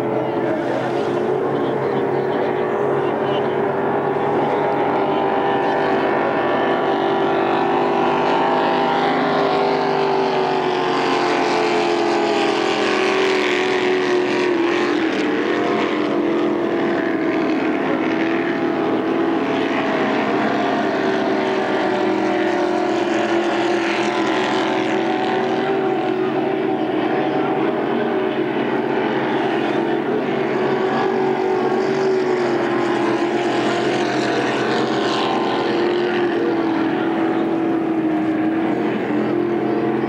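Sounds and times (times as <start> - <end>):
powerboat engine running flat out: 0.0 - 40.0.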